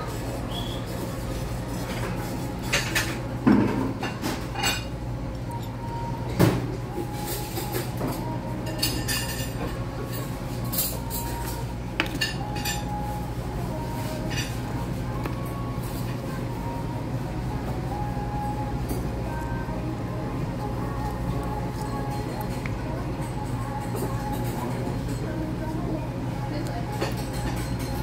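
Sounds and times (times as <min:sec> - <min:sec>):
low room hum: 0:00.0 - 0:28.0
cutlery clinking on plates: 0:26.9 - 0:28.0.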